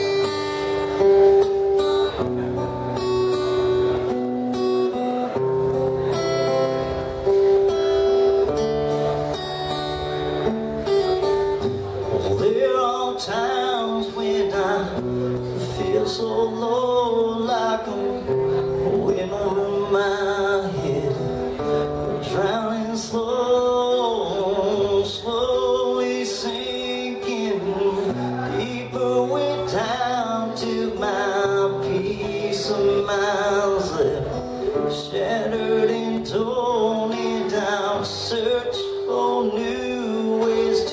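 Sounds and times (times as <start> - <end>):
acoustic guitar strumming: 0.0 - 40.9
man singing: 12.0 - 40.9.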